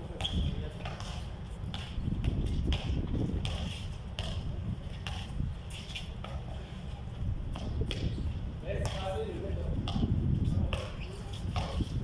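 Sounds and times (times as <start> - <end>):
basketball bouncing on concrete: 0.0 - 12.0
sneakers scuffing: 0.1 - 9.2.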